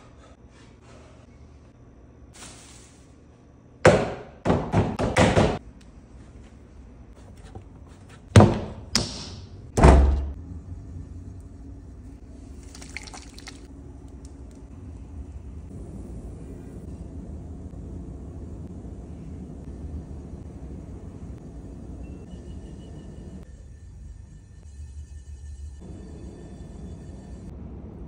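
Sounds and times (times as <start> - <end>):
pottery wheel humming: 5.6 - 28.0.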